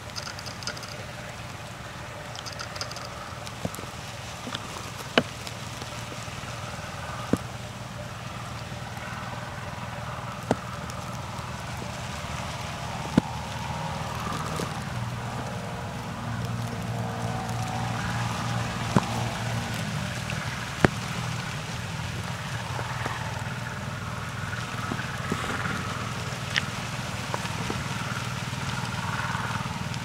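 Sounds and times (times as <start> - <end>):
sharp clicks: 0.0 - 3.9.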